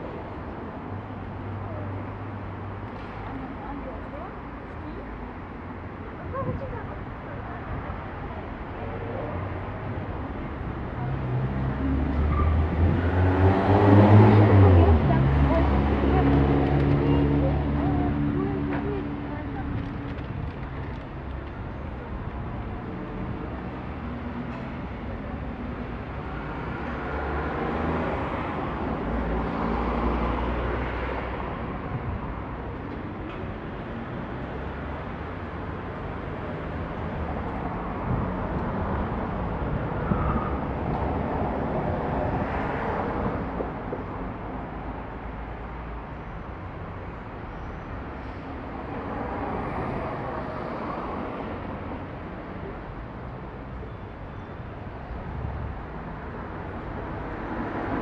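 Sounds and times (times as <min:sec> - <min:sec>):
rumble of passing vehicles: 0:00.0 - 0:58.0
street traffic noise: 0:00.0 - 0:58.0
vehicle passing: 0:11.1 - 0:20.4.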